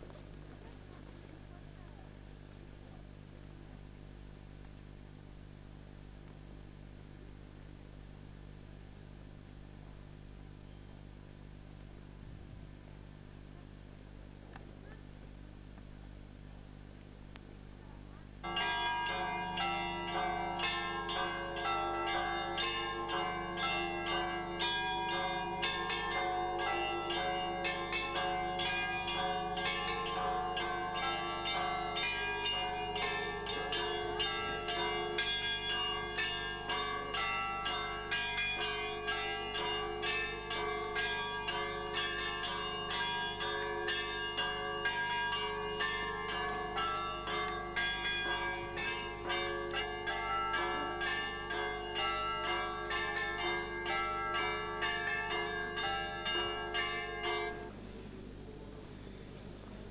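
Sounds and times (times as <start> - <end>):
church bells ringing: 18.4 - 58.2.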